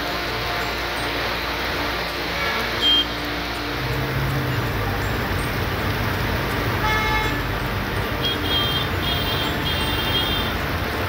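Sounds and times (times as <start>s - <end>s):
heavy rain hiss: 0.0s - 11.0s
tyres through standing water: 0.0s - 11.0s
vehicle horn toot: 2.4s - 3.1s, 6.8s - 7.4s, 8.2s - 10.6s.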